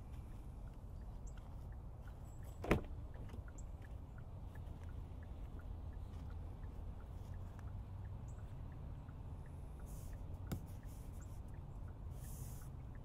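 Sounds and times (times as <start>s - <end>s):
low steady rumble: 0.0s - 13.0s
car door latch clicking open: 2.6s - 2.9s.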